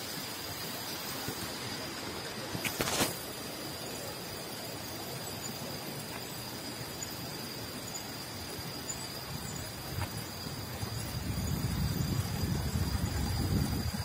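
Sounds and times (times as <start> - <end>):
bicycle tyres rolling on asphalt: 4.8 - 14.0
wind rushing past microphone: 9.3 - 14.0.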